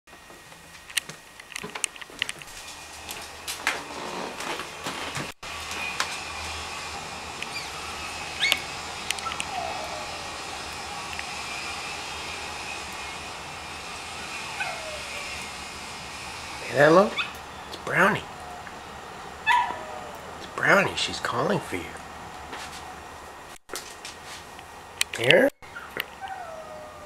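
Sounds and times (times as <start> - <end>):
steady background hum: 0.1 - 27.0
distant dog whining: 7.4 - 12.1, 14.2 - 15.5, 17.1 - 18.8, 19.4 - 20.5, 25.6 - 27.0.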